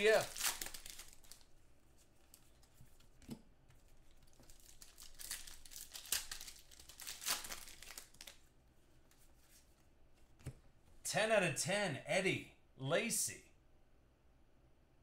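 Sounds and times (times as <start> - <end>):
plastic packaging crinkling: 0.0 - 3.1, 3.8 - 8.4.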